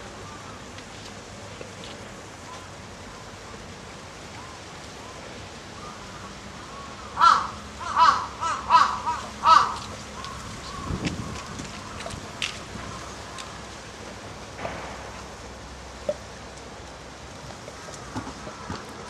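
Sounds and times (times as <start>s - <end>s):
faint outdoor background: 0.0s - 19.0s
crow cawing: 7.2s - 11.0s.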